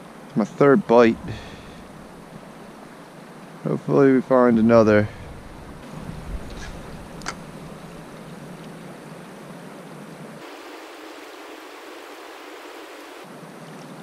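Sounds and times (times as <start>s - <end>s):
creek water flowing: 0.0s - 13.5s
low rumble: 0.8s - 3.0s, 4.5s - 8.5s.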